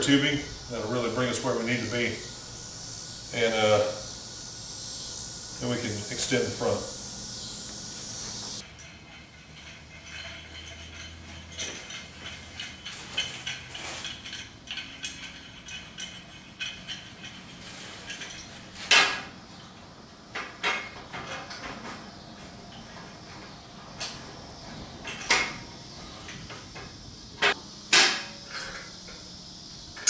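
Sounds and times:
small metal clinks and taps: 8.8 - 18.5.

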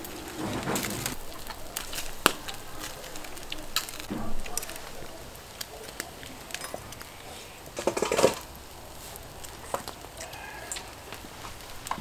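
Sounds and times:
clicks and rustles of eating: 0.0 - 12.0
crackly burst: 0.0 - 12.0.

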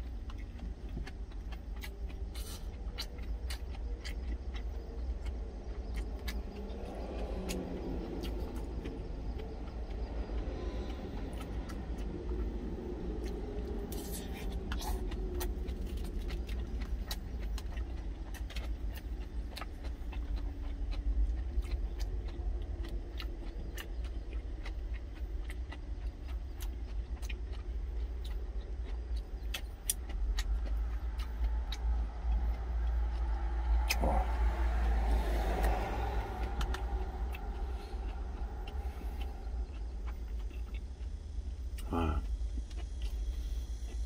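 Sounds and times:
truck engine idling: 29.1 - 42.2.

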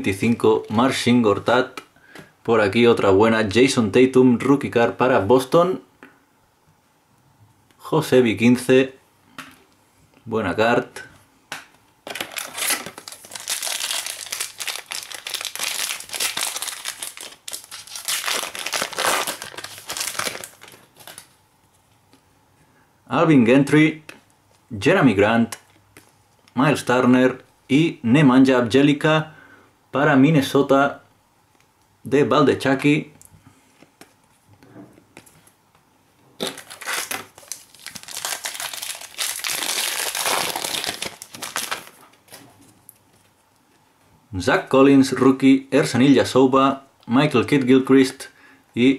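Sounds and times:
foil wrapper crinkling and tearing: 12.0 - 21.4, 36.4 - 42.4.

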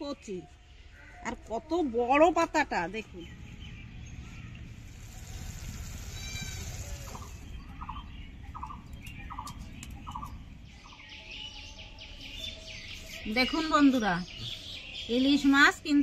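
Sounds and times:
outdoor background rumble: 0.2 - 16.0
high chirping call: 6.0 - 15.7.

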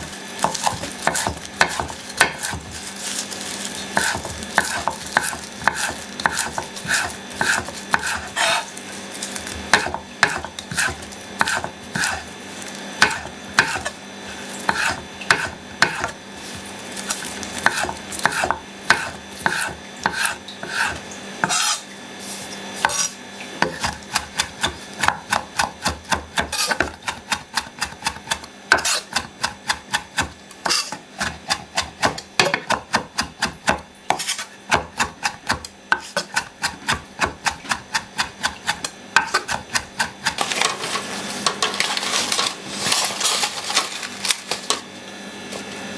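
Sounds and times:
knife chopping on wooden board: 0.4 - 2.8, 4.0 - 8.7, 9.5 - 12.2, 13.0 - 13.9, 14.7 - 21.8, 22.8 - 40.7.

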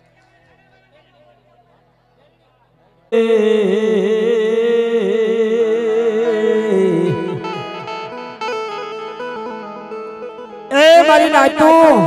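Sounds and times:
plucked string instrument music: 5.8 - 12.0.

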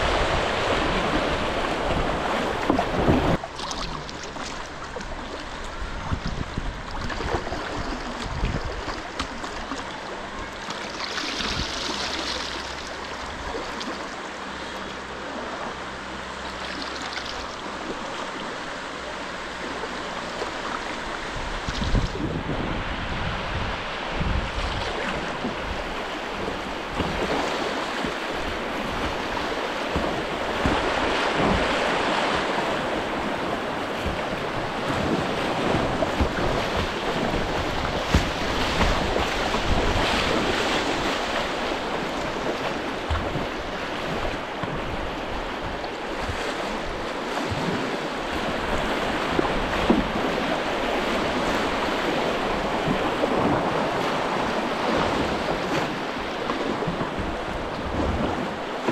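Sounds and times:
river water rushing and splashing: 0.0 - 58.9
wind buffeting microphone: 5.0 - 10.6, 20.8 - 58.9.

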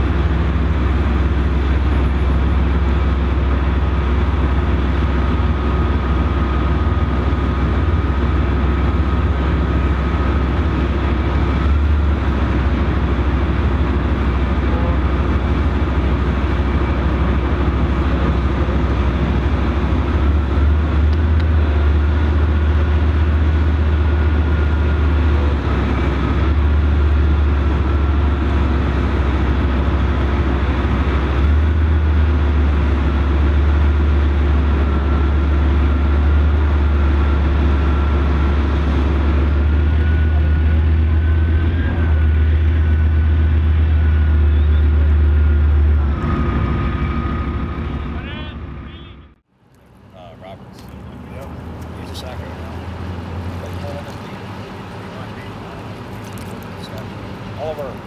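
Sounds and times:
tracked vehicle diesel engine: 0.0 - 58.0
high whine: 36.8 - 49.4.

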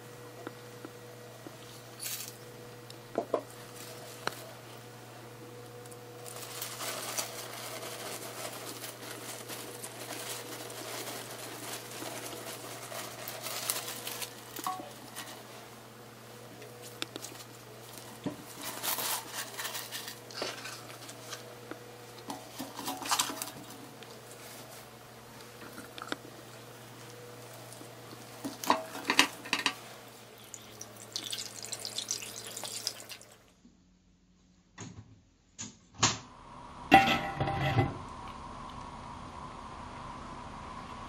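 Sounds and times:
rustling and crinkling bag: 5.8 - 15.7, 16.7 - 33.0
faint low hum: 36.1 - 41.0.

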